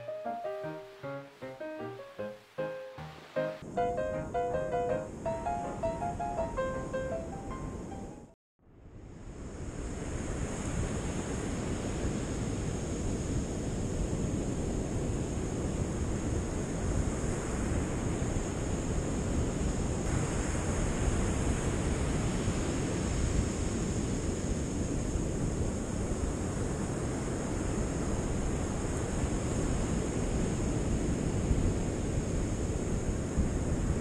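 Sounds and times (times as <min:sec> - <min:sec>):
wind rumbling on microphone: 0:08.9 - 0:34.0.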